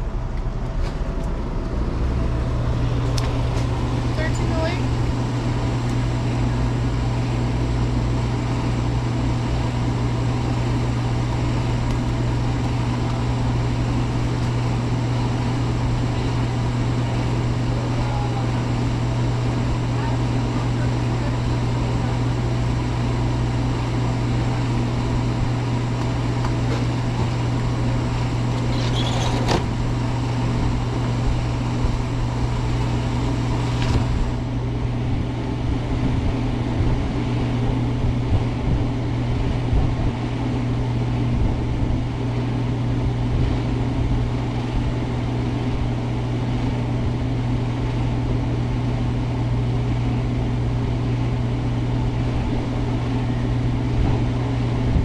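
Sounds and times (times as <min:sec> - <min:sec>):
car engine idling: 0:00.0 - 0:35.6.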